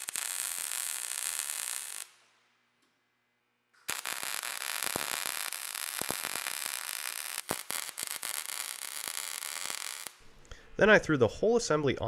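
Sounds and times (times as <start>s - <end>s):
welding arc crackling and hissing: 0.0s - 2.2s, 3.8s - 10.2s
welding pops: 0.0s - 3.1s, 3.7s - 10.2s.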